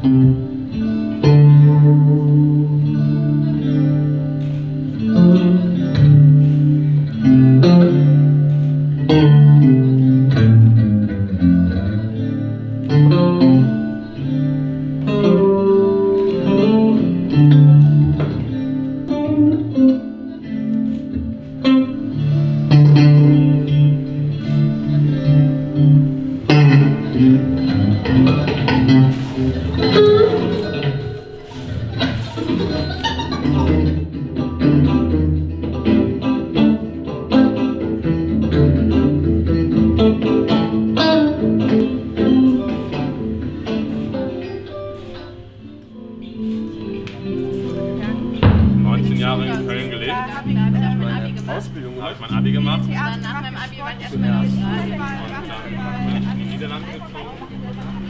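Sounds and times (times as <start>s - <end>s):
electric guitar playing: 0.0s - 58.0s.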